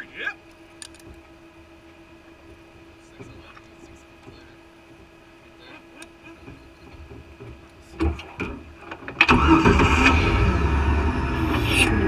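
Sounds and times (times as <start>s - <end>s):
vehicle engine running hard: 9.4s - 12.0s.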